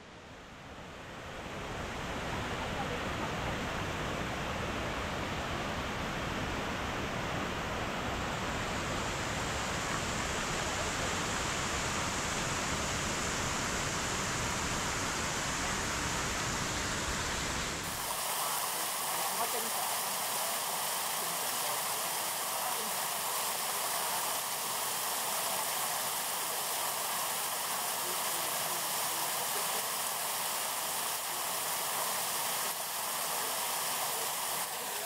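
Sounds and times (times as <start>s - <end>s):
waterfall splashing: 9.8s - 35.0s.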